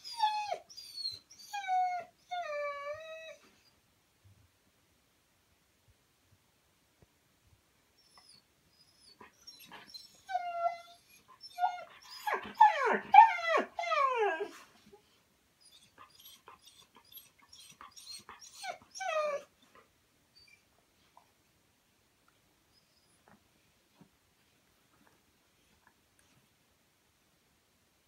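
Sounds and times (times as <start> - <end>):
dog whining and whimpering: 0.0 - 3.7, 8.0 - 14.7, 15.6 - 19.8, 20.4 - 20.7.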